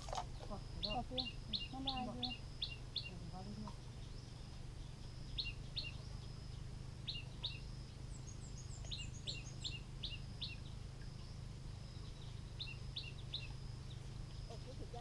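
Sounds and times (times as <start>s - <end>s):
birds calling: 0.0s - 15.0s
steady low rumble: 0.0s - 15.0s.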